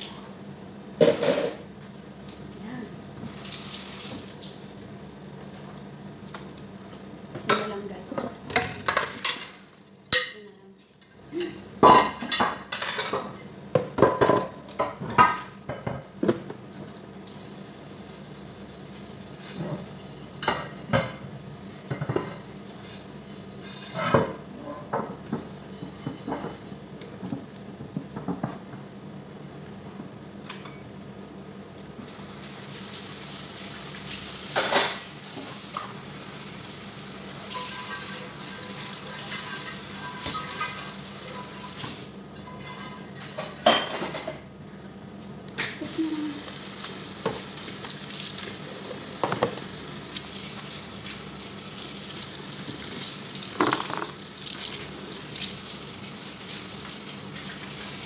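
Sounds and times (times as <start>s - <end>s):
dishes clattering in sink: 1.0s - 1.6s, 7.4s - 10.5s, 11.4s - 16.5s, 19.6s - 21.2s, 34.5s - 36.0s, 37.5s - 44.4s, 53.5s - 54.2s
tap running: 49.1s - 49.7s.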